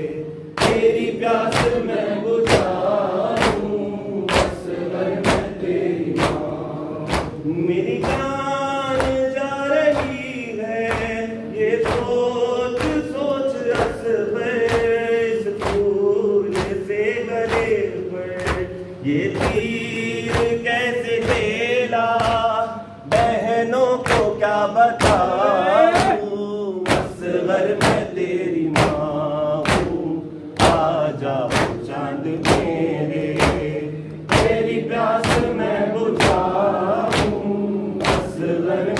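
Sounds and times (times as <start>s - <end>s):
men chanting in chorus: 0.0s - 38.9s
hands slapping chests: 1.5s - 8.3s, 9.9s - 10.3s, 14.7s - 16.8s, 29.6s - 30.0s, 32.4s - 35.6s, 36.2s - 38.6s.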